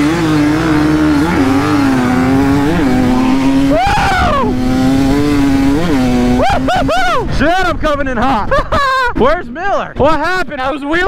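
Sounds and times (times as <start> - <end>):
dirt bike engine revving: 0.0 - 7.4.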